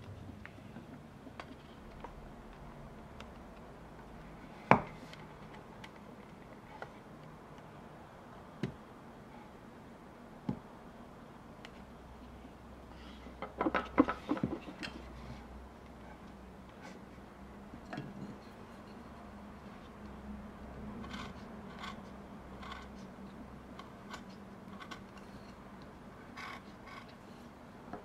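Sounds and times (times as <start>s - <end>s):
carving tool scraping wood: 20.8s - 23.2s, 26.2s - 27.2s.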